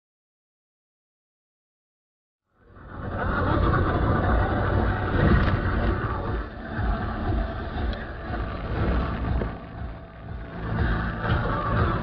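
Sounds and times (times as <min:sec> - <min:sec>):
car road and engine rumble: 0:02.7 - 0:12.0.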